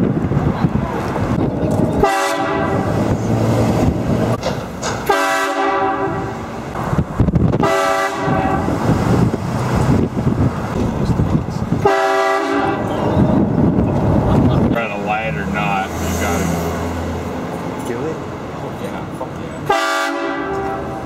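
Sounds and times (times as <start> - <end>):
road and engine noise: 0.0 - 21.0
train horn blasting: 2.0 - 2.9, 5.0 - 6.5, 7.6 - 8.8, 11.8 - 12.9, 19.7 - 21.0.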